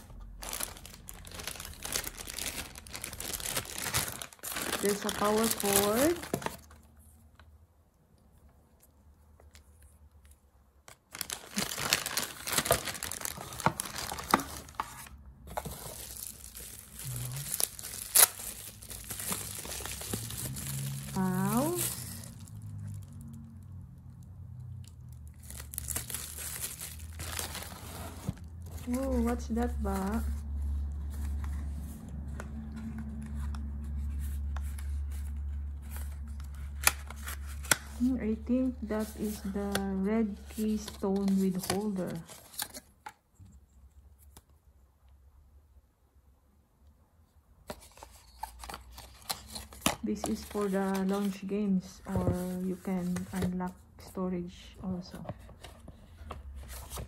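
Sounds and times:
plastic packaging crinkling: 0.2 - 6.9, 10.9 - 23.4, 25.1 - 30.3.

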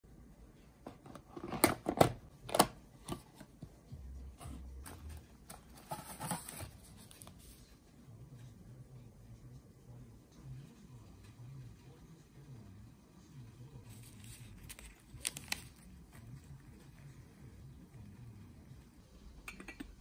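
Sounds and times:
paper sachet crinkling: 13.9 - 16.0.

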